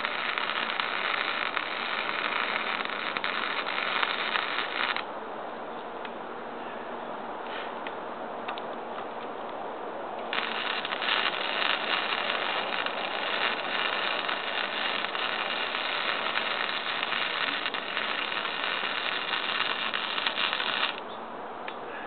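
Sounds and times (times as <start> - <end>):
welding arc crackling: 0.0 - 5.1, 10.2 - 21.0.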